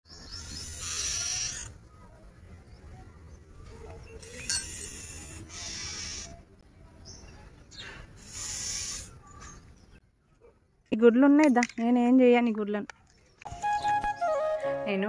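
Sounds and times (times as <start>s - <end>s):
bird churr calls: 0.1s - 1.8s, 4.2s - 6.5s, 8.2s - 9.6s.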